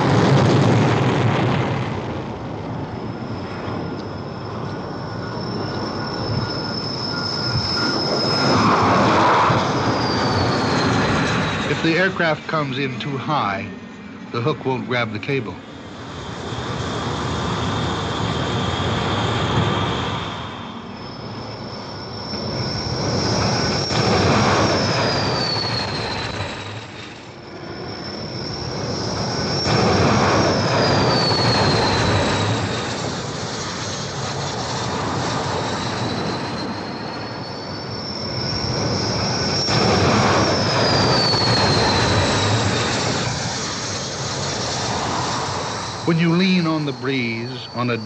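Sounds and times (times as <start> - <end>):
high jet whine sliding down: 0.0 - 48.0
jet aircraft landing: 0.0 - 48.0.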